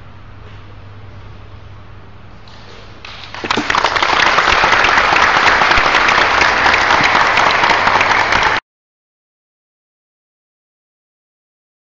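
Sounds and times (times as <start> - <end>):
audience applauding: 3.1 - 8.6.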